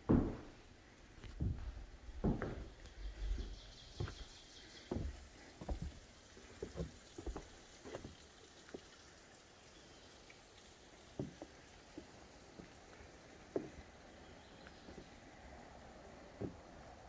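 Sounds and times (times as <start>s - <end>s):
footsteps on wooden boards: 0.0s - 8.2s, 11.2s - 12.8s, 13.5s - 13.9s, 14.9s - 15.2s, 16.4s - 16.8s.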